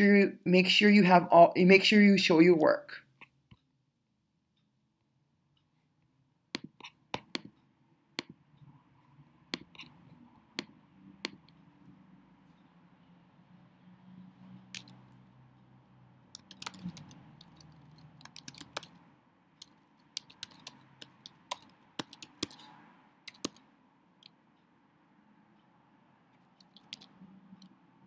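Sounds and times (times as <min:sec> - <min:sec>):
keyboard typing: 0:06.5 - 0:07.6, 0:09.5 - 0:11.6, 0:14.7 - 0:15.3, 0:16.3 - 0:24.4, 0:26.3 - 0:27.8.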